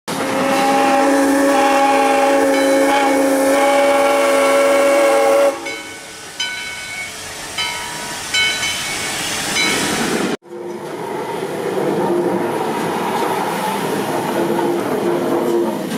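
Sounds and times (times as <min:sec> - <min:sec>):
steam locomotive chime whistle: 0:00.1 - 0:09.9
steam hiss: 0:00.1 - 0:10.4.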